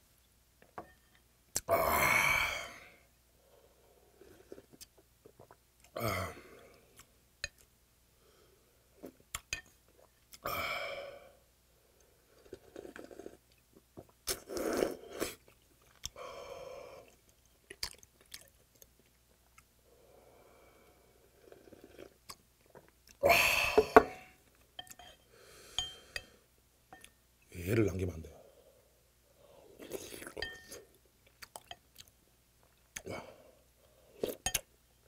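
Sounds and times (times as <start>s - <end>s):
slurping broth: 14.3s - 15.4s
person chewing: 17.0s - 19.7s, 29.8s - 33.1s
gasping exhales: 23.2s - 24.1s.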